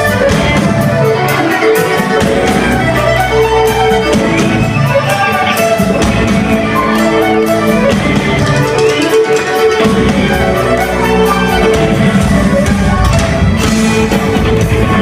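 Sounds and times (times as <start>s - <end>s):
folk-rock band playing live: 0.0s - 15.0s
steady drum beat: 0.0s - 15.0s.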